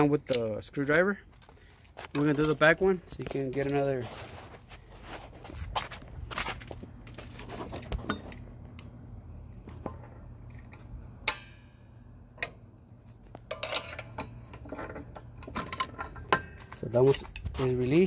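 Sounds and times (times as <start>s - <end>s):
steady low hum: 0.0s - 18.0s
metallic clank with ringing: 11.2s - 11.8s.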